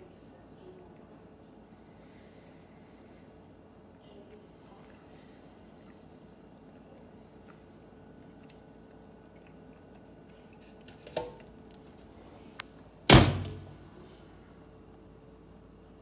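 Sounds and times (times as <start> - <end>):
microwave door clicking open: 13.1 - 13.7
microwave door thunking shut: 13.1 - 13.8.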